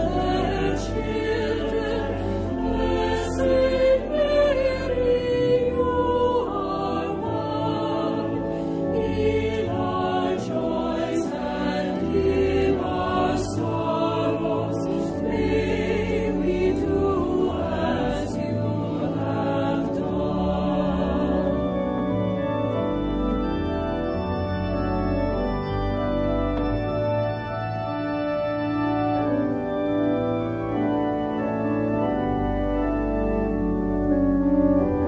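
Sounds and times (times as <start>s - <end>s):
choir singing a hymn: 0.0s - 23.4s.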